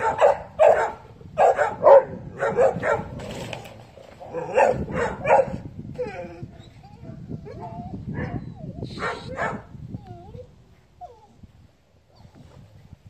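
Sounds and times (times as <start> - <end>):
dog barking: 0.0 - 3.2, 4.3 - 5.6, 9.0 - 9.7.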